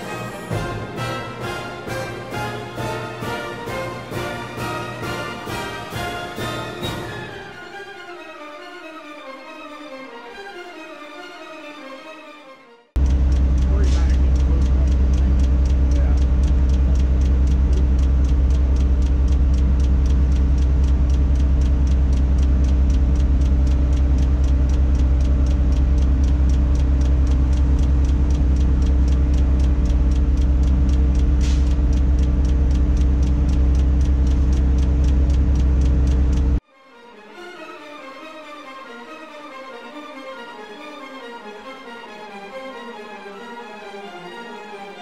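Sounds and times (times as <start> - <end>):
diesel engine droning: 13.0 - 36.6
rapid even ticking: 13.0 - 36.6.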